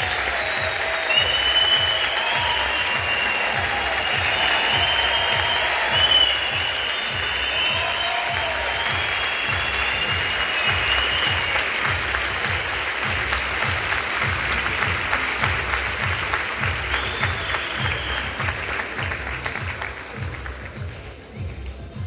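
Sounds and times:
audience applauding: 0:00.0 - 0:21.2
music with steady low beat: 0:00.0 - 0:22.0.

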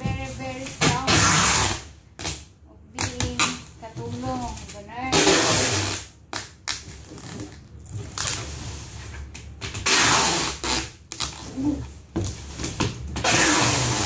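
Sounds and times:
packing tape pulled off roll: 0:05.1 - 0:11.6, 0:12.5 - 0:14.0.

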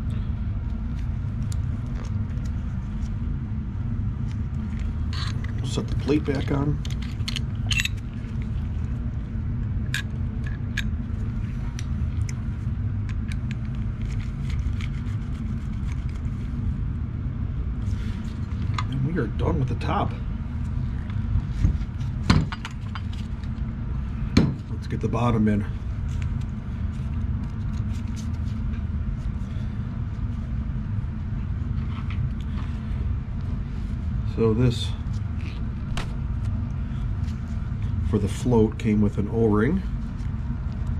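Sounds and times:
steady low hum: 0:00.0 - 0:40.9
steady low rumble: 0:00.0 - 0:40.9
small metal parts clicking: 0:06.8 - 0:08.0.

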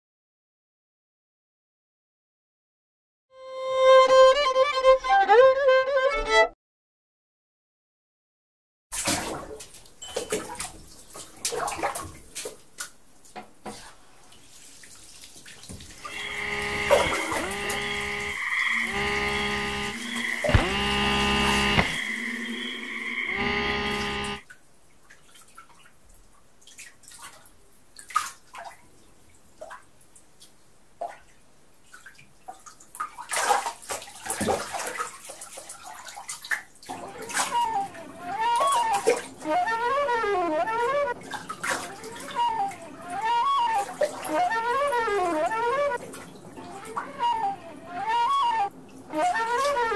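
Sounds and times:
bathwater sloshing and splashing: 0:08.9 - 0:18.9, 0:26.6 - 0:28.8, 0:31.0 - 0:39.5, 0:41.2 - 0:44.6, 0:45.6 - 0:47.3
wavering warbling musical tone: 0:16.0 - 0:24.4, 0:37.0 - 0:41.2, 0:41.9 - 0:46.0, 0:46.6 - 0:49.9.

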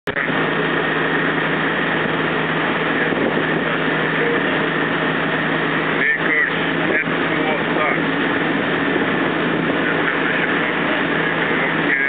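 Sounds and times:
boat engine hum: 0:00.0 - 0:12.0
rushing water: 0:00.0 - 0:12.0
wind: 0:00.0 - 0:12.0.

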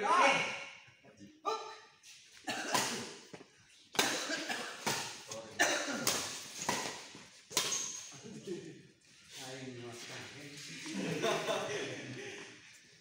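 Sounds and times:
racket hitting shuttlecock: 0:02.7 - 0:05.4, 0:06.0 - 0:08.1.

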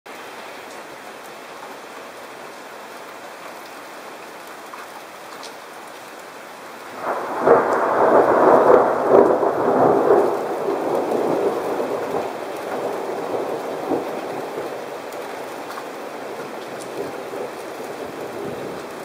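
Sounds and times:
heavy rain: 0:00.1 - 0:19.0
thunder rumbling: 0:06.9 - 0:19.0.

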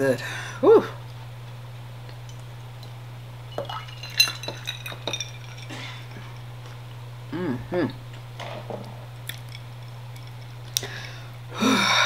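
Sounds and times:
steady low hum: 0:00.0 - 0:12.0
dishes and cutlery clinking: 0:03.5 - 0:06.4.

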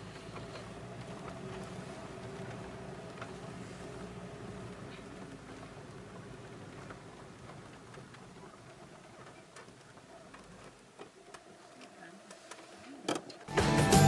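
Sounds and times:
car engine and road rumble: 0:00.0 - 0:09.2
faint ticks and clicks: 0:00.0 - 0:13.5.

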